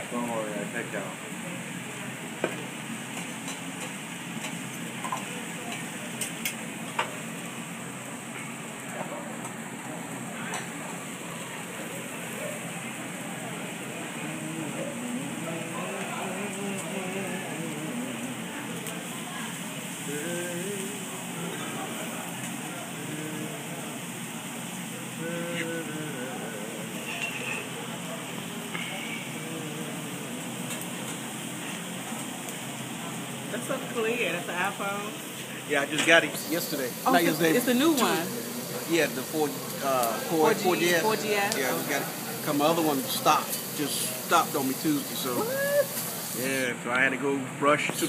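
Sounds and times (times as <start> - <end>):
food sizzling on a griddle: 0.0 - 47.0, 47.8 - 48.0
faint voices: 8.8 - 48.0.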